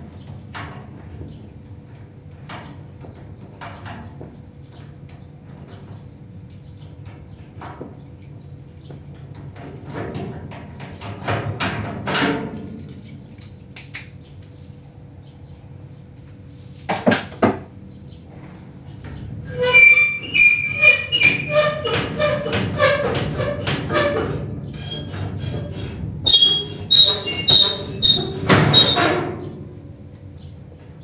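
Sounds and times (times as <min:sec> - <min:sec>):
creaky metal squeaks: 0:09.1 - 0:13.5, 0:19.0 - 0:30.0.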